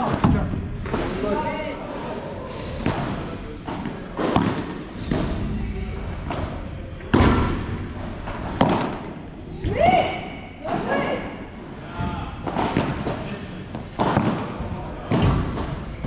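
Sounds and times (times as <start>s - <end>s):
ball bouncing off court and walls: 2.8s - 9.2s, 12.0s - 16.0s.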